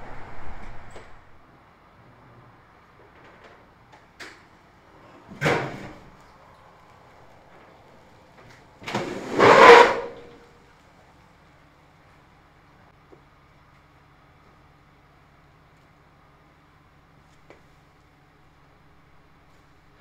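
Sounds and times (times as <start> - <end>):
car rolling clunk and rumble: 0.0 - 1.5, 2.4 - 9.5.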